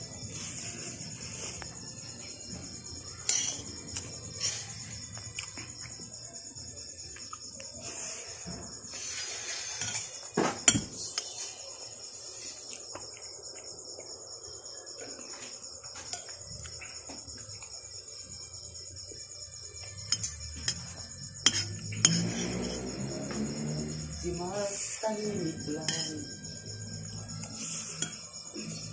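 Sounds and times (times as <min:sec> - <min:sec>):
crickets chirping: 0:00.0 - 0:28.9
cutlery clinking on plate: 0:25.9 - 0:26.1.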